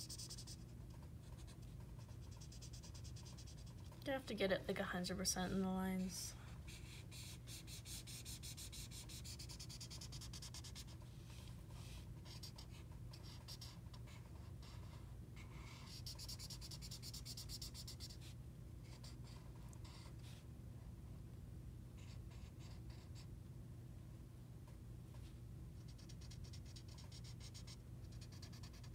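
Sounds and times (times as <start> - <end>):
marker rubbing on paper: 0.0 - 4.0, 6.7 - 20.4, 25.9 - 28.9
steady low hum: 0.0 - 28.9.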